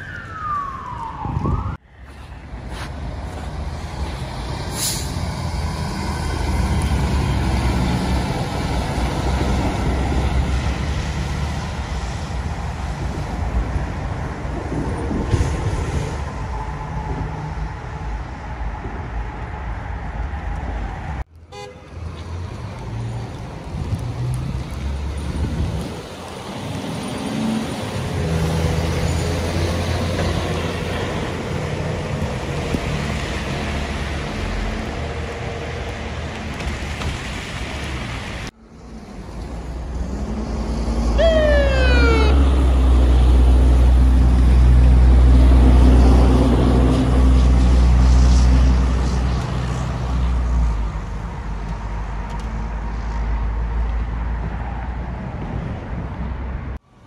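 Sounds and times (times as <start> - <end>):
truck engines rumbling: 0.0 - 57.0.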